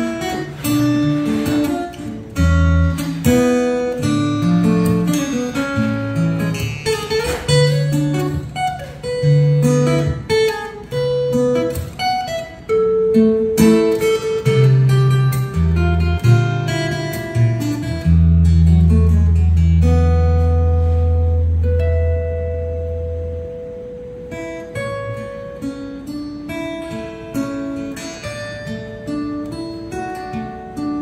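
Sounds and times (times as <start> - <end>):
fingerstyle acoustic guitar: 0.0 - 31.0.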